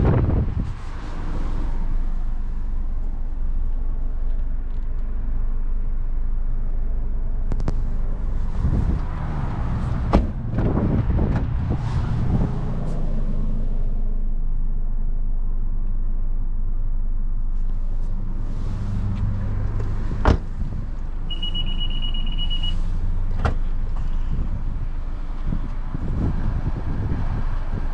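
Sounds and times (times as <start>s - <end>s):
car engine humming: 0.0s - 27.9s
high-pitched beep: 21.3s - 22.8s.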